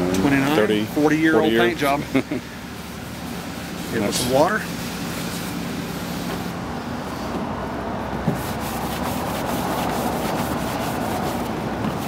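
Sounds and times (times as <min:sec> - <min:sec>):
cloth wiping painted metal: 0:01.1 - 0:06.5, 0:08.3 - 0:12.0.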